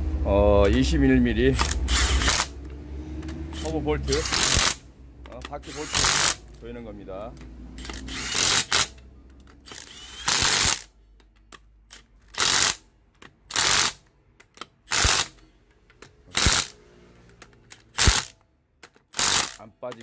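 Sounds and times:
impact wrench hammering: 1.6 - 6.6, 7.4 - 9.0, 9.6 - 10.9, 11.9 - 12.8, 13.4 - 15.6, 16.3 - 16.8, 17.8 - 18.4, 19.0 - 19.7.

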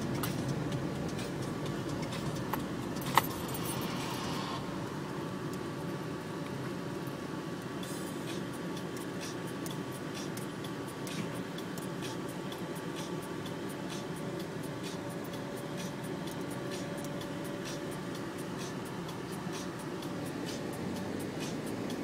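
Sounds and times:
car engine and road rumble: 0.0 - 22.0
faint hum: 0.0 - 22.0.

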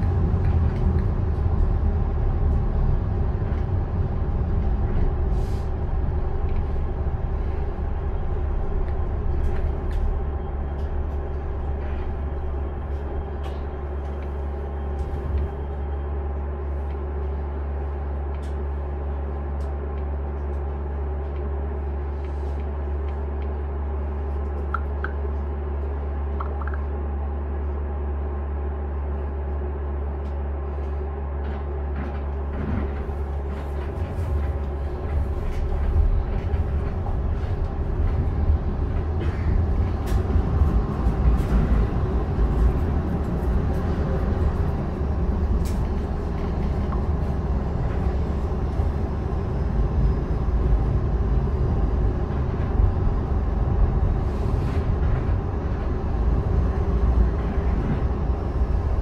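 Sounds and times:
onboard equipment hum: 0.0 - 27.8
rail car rumbling: 0.0 - 59.0.

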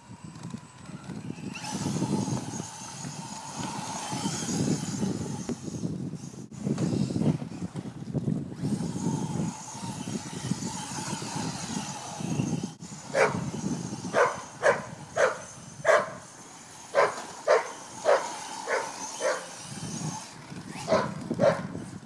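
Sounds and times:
electric motor whine: 0.0 - 22.0
wind noise on microphone: 0.0 - 22.0
dog barking: 14.2 - 16.2, 17.0 - 19.4, 20.9 - 21.7.

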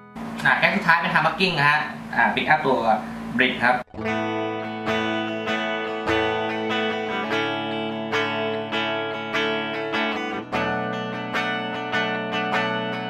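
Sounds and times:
clean electric guitar chords: 3.8 - 13.0.

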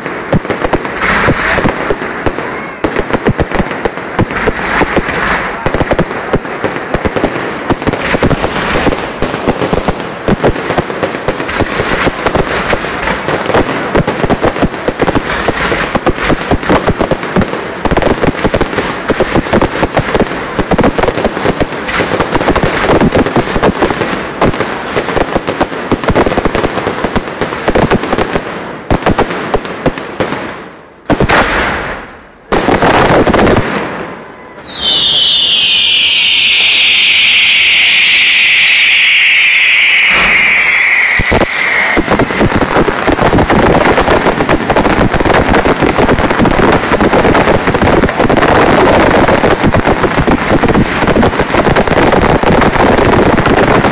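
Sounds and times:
fireworks crackling and bangs: 0.0 - 53.9
shrill falling whistle: 34.5 - 41.9.

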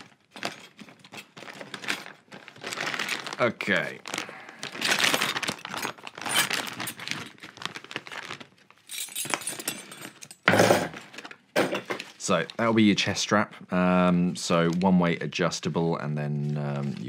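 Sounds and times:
plastic bag crinkling: 0.0 - 9.6.

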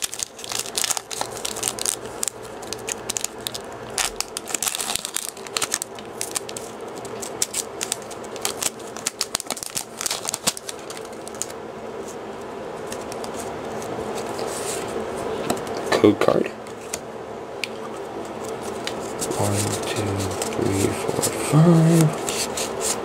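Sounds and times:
foil wrapper crinkling and tearing: 0.0 - 11.6.

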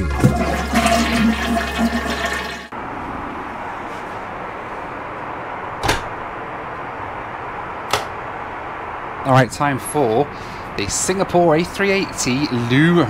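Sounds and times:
toilet flush: 0.0 - 2.7.

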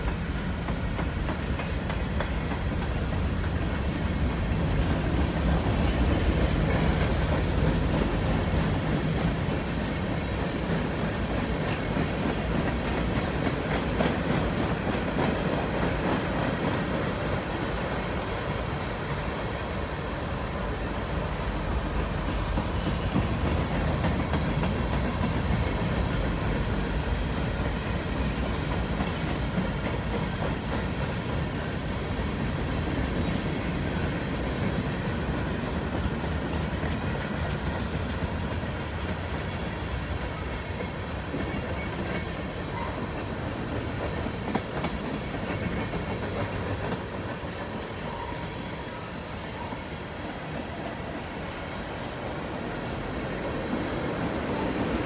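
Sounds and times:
wheels clicking over rail joints: 0.0 - 9.9, 32.5 - 48.4
steel wheels rumbling on rails: 0.0 - 55.0.

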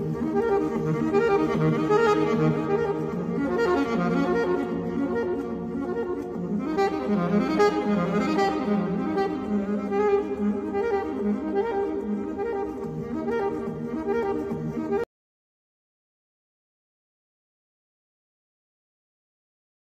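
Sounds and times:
instrumental background music: 0.0 - 15.0.

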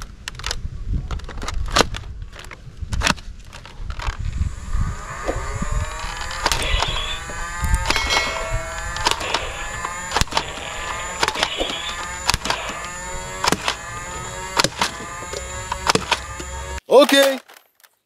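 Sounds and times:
toy blaster motor whining: 4.0 - 16.8.

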